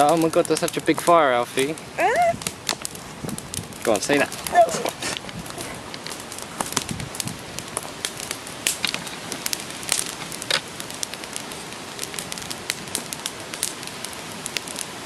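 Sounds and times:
campfire flames hissing: 0.0 - 15.0
fire crackling and popping: 0.0 - 15.0.

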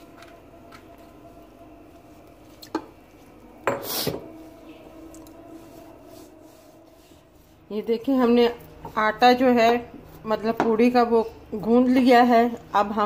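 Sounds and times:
faint steady hum: 0.0 - 13.0
hand mixing dough in plastic bowl: 4.2 - 13.0.

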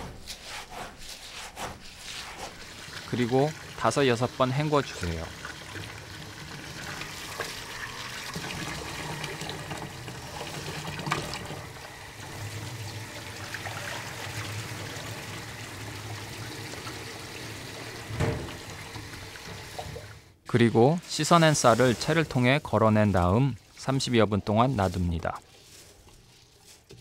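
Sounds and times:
hands swishing rice in water: 0.2 - 3.4, 20.5 - 27.0
tap water running into bowl: 2.6 - 20.2.

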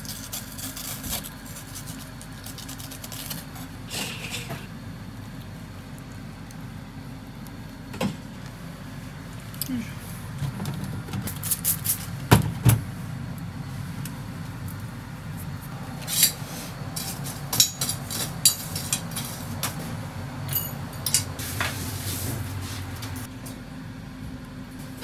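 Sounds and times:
steady low hum: 0.0 - 25.0
metal skewers clinking: 20.5 - 21.4.

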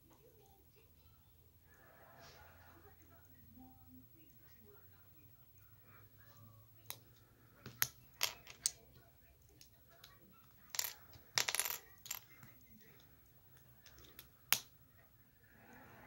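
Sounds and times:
plastic bricks clicking together: 7.7 - 9.0, 9.6 - 14.7.

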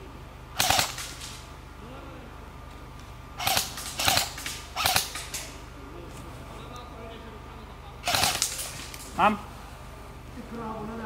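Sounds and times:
airsoft rifle rapid shots: 0.6 - 1.4, 3.4 - 5.6, 8.0 - 9.1.

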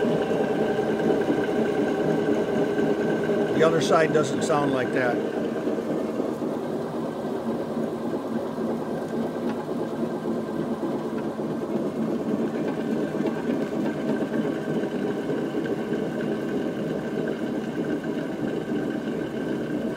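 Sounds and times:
mulcher drum spinning: 0.0 - 6.5
thin mechanical whine: 0.0 - 6.5.

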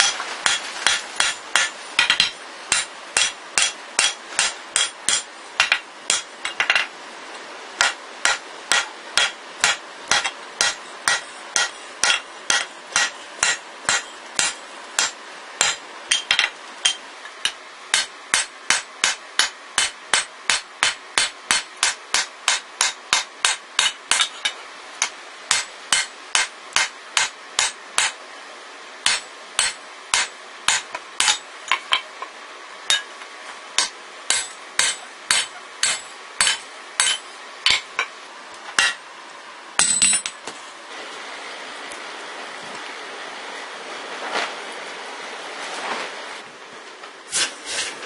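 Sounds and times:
hammer striking hot steel on anvil: 0.0 - 6.9, 7.8 - 28.2, 29.0 - 32.0, 32.9 - 33.1, 33.8 - 38.1, 38.8 - 39.0, 39.8 - 40.4.

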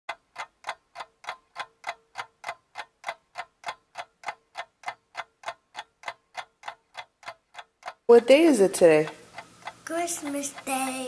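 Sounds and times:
rapid even ticking: 0.1 - 11.0.

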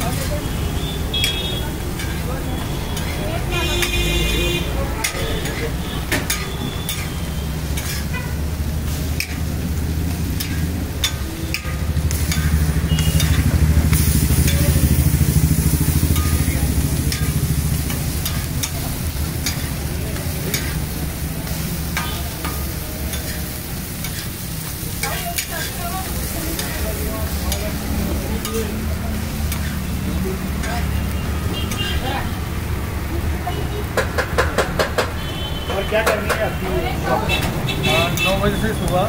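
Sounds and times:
light sizzle: 0.0 - 34.0
metal spatula scraping griddle: 1.9 - 2.3, 5.0 - 28.8, 29.4 - 30.8.

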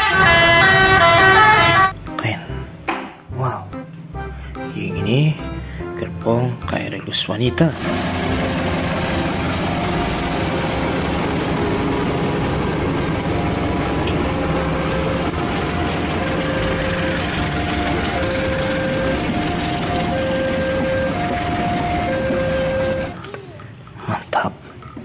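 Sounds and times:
train wheels rumbling on rails: 0.0 - 1.8, 7.7 - 23.2
two-note level-crossing alarm: 0.0 - 2.0, 7.8 - 23.2.

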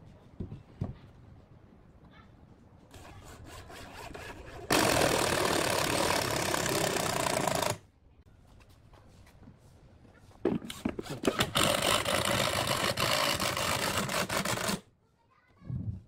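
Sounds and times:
light wooden knocks: 0.1 - 1.2
electric power tool running: 4.7 - 7.8.

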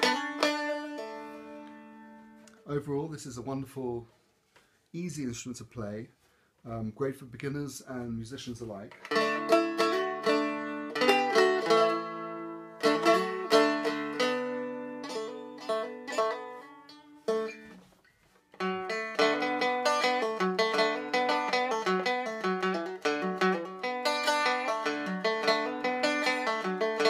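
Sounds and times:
plucked dulcimer melody: 0.0 - 2.5, 9.0 - 17.6, 18.6 - 27.0
dulcimer strumming: 0.0 - 3.1, 8.9 - 27.0.

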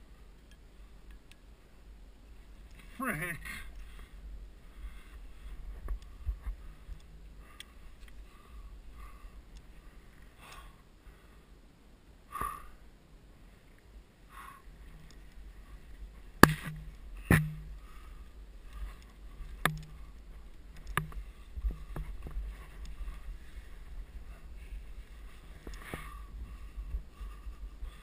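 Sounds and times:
steady low rumble: 0.0 - 28.0
climbing gear clicking on rock: 9.5 - 10.8.

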